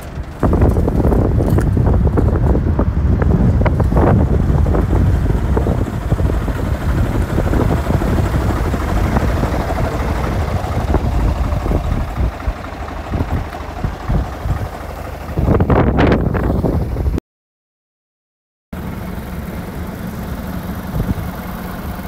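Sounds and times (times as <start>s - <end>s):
truck diesel engine idling: 0.0s - 17.2s, 18.8s - 22.0s.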